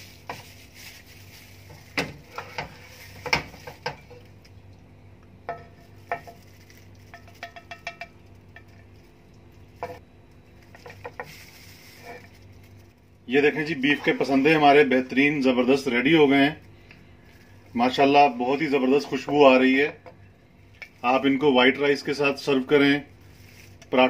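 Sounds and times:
spatula scraping a wok: 0:00.0 - 0:04.2, 0:09.8 - 0:10.0, 0:10.7 - 0:12.4
faint steady hum: 0:00.0 - 0:24.0.

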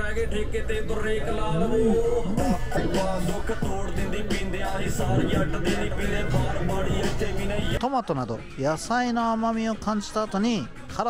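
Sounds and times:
low bass: 0:00.0 - 0:07.8
music with melodic vocals: 0:00.0 - 0:11.0.

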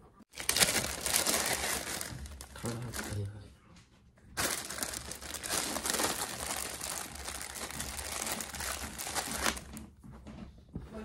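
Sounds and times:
plastic packaging crinkling: 0:00.3 - 0:03.3, 0:04.4 - 0:09.9.

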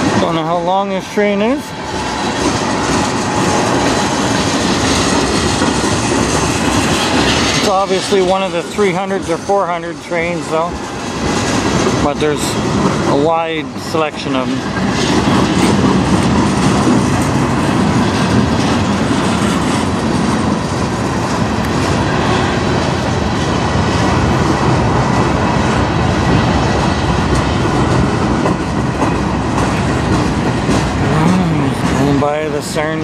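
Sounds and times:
train wheels clacking over rails: 0:00.0 - 0:33.0.

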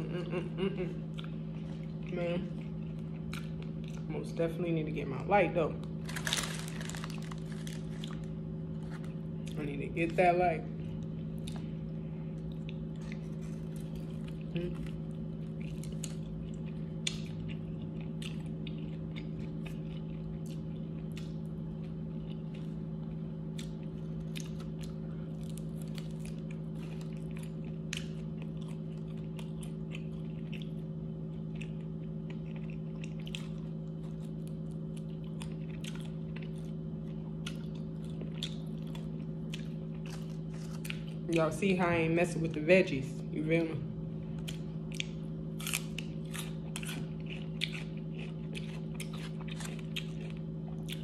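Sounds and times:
steady low hum: 0:00.0 - 0:51.0
chewing and biting: 0:01.1 - 0:04.1, 0:11.0 - 0:41.4, 0:44.3 - 0:51.0
clicks and crunches: 0:06.0 - 0:08.4.

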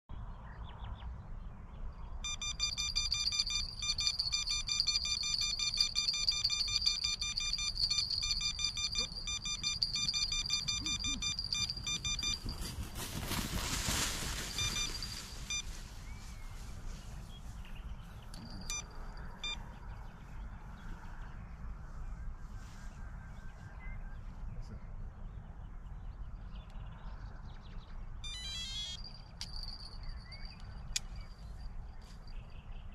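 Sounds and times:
low wind rumble: 0:00.1 - 0:28.2
electronic bite alarm beeping: 0:02.2 - 0:12.7, 0:14.5 - 0:15.7, 0:18.4 - 0:19.6, 0:28.2 - 0:30.0
rustling: 0:02.4 - 0:17.8.

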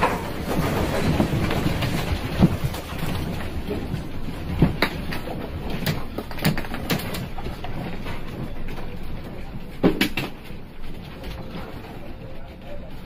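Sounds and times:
sharp knocks and clicks: 0:04.4 - 0:07.9.

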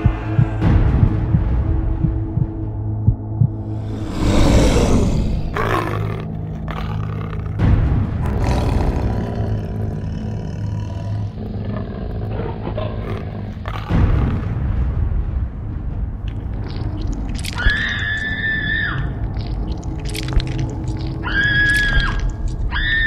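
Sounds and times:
low dark music drone: 0:00.0 - 0:23.0
monster roaring: 0:03.8 - 0:14.1.

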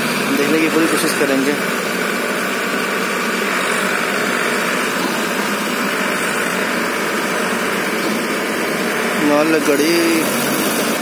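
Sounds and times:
tractor diesel engines straining: 0:00.0 - 0:11.0.

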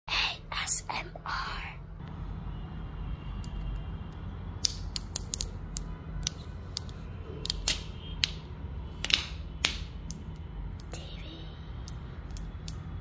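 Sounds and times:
steady low hum: 0:05.4 - 0:13.0.

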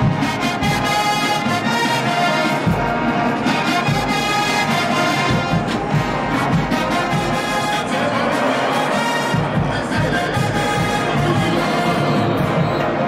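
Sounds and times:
drum strikes: 0:00.0 - 0:08.3
brass sustained chords: 0:00.0 - 0:13.0.

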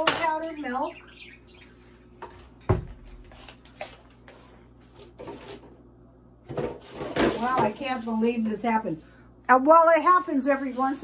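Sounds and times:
kitchen items knocking on counter: 0:06.4 - 0:08.0.

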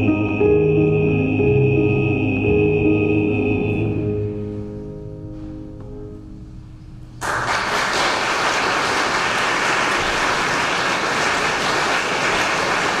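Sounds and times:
piano chord: 0:00.0 - 0:07.4
audience applause: 0:07.2 - 0:13.0.

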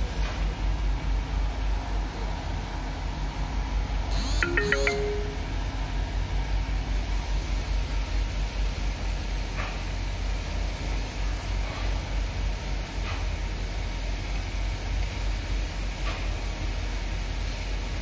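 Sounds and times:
chiming ringtone notes: 0:04.4 - 0:05.5.

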